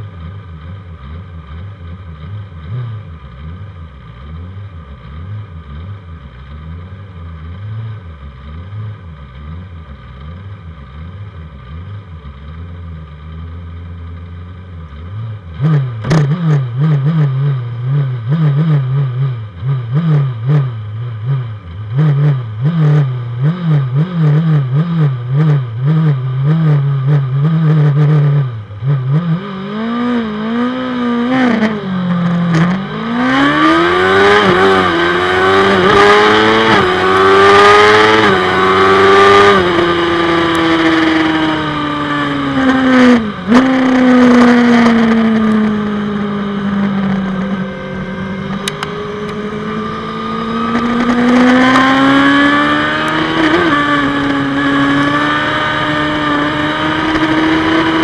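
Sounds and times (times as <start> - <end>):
motorcycle engines revving: 14.9 - 58.0.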